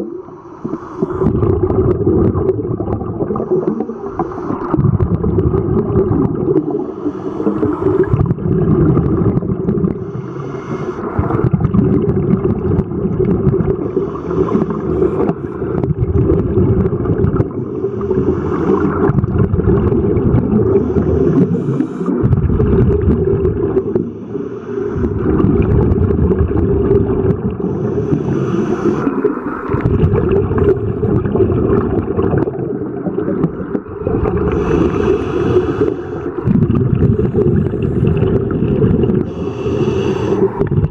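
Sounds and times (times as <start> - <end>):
gurgling exhaled bubbles: 0.0 - 40.9
diver regulator inhale hiss: 0.1 - 1.4, 3.4 - 4.8, 6.6 - 8.1, 10.0 - 11.4, 13.8 - 15.7, 17.6 - 19.2, 20.7 - 22.2, 23.9 - 25.3, 27.6 - 29.8, 34.4 - 36.4, 39.2 - 40.7.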